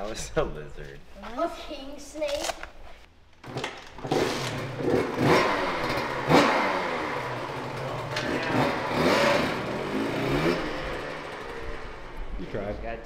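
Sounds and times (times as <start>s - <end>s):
dirt bike engine revving: 3.5s - 12.8s.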